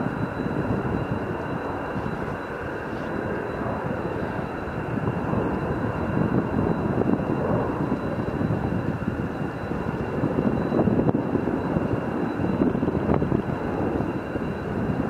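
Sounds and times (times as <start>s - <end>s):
jet engines running: 0.0s - 15.0s
thin high engine whine: 0.0s - 15.0s.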